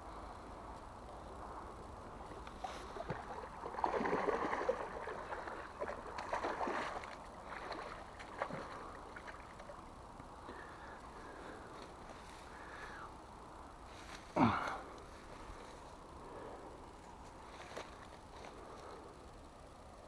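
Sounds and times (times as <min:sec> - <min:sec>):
fish thrashing and splashing: 0:02.7 - 0:09.8.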